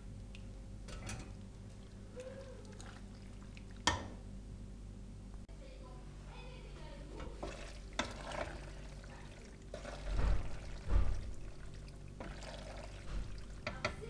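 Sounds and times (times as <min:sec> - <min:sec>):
pasta stirred in sauce: 0:07.2 - 0:13.9.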